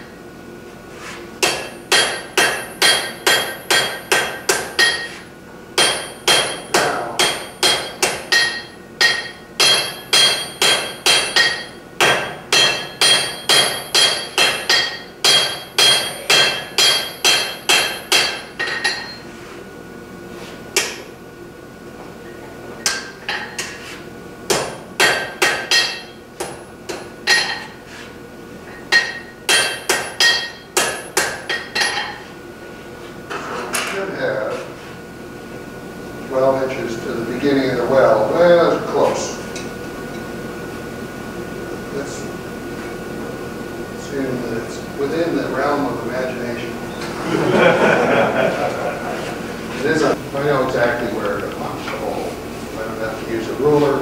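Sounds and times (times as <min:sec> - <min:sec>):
hammer striking iron on anvil: 0:01.4 - 0:05.2, 0:05.8 - 0:19.2, 0:20.8 - 0:21.1, 0:22.8 - 0:23.8, 0:24.5 - 0:27.8, 0:28.8 - 0:32.2.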